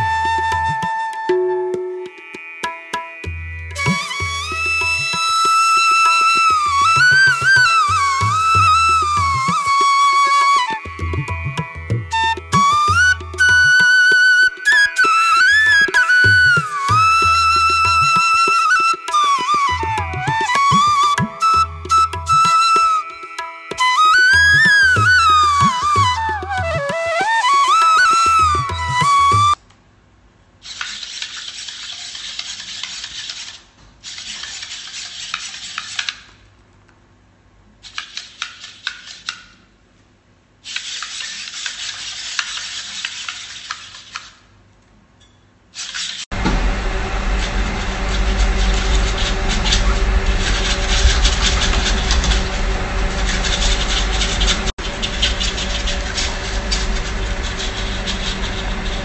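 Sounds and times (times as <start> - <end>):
low hum: 46.3 - 59.0.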